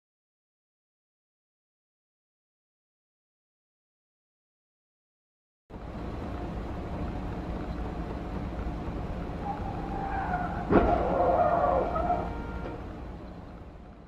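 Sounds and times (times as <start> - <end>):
road and engine rumble: 5.7 - 14.0
tyres squealing: 9.4 - 12.8
vehicle collision crash: 10.3 - 12.8.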